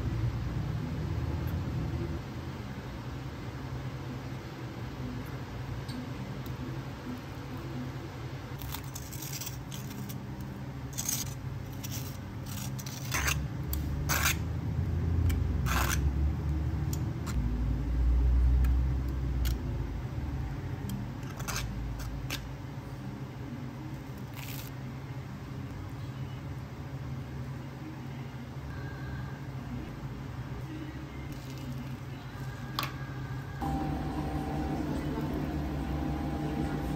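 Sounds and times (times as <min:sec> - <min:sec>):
steady machine hum: 0:33.4 - 0:36.9.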